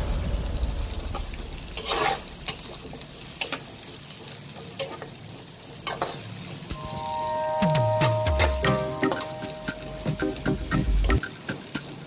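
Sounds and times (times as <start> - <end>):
onions sizzling in hot oil: 0.0 - 7.6.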